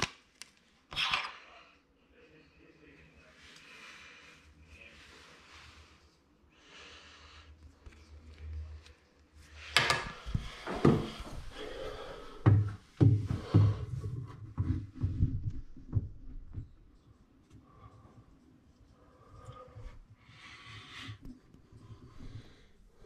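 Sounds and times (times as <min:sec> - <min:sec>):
bumps and clunks against wood: 0:12.4 - 0:16.7.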